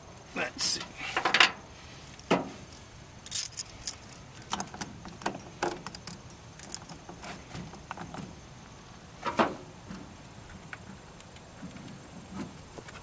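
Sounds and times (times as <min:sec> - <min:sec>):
saw chain clinking and rattling: 0:03.2 - 0:07.0.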